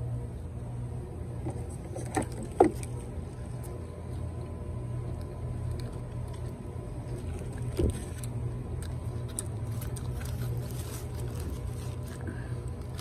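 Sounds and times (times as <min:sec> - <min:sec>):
paper wrapper rustling: 0:07.1 - 0:13.0.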